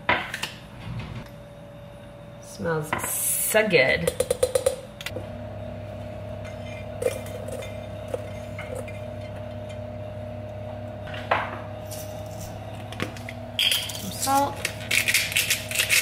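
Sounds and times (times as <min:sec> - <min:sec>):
steady hum: 0:00.0 - 0:16.0
metal spoon tapping steel bowl: 0:04.0 - 0:04.8.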